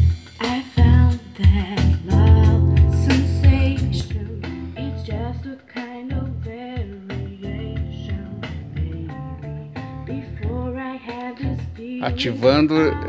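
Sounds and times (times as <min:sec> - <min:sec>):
steady bass line: 0:00.0 - 0:00.2, 0:01.8 - 0:05.4, 0:07.2 - 0:10.8
slow song over speakers: 0:00.0 - 0:13.0
person singing: 0:00.4 - 0:13.0
guitar playing: 0:02.1 - 0:05.3.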